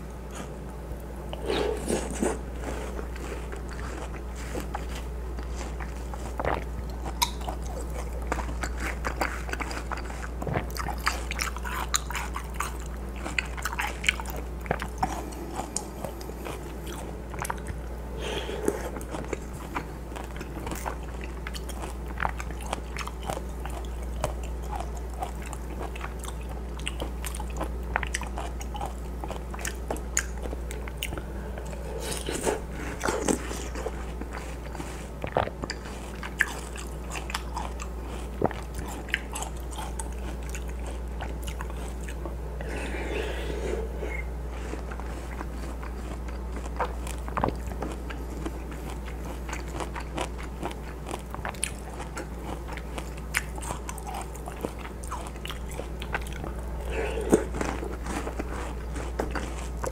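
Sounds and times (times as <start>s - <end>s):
wet chewing crunches: 1.3s - 59.9s
low hum: 29.9s - 35.0s.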